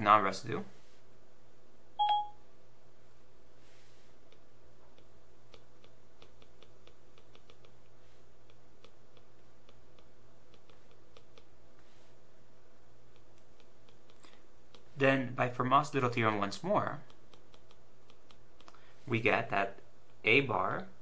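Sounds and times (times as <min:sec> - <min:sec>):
steady low hum: 0:00.0 - 0:21.0
stylus tapping on tablet screen: 0:04.3 - 0:11.5.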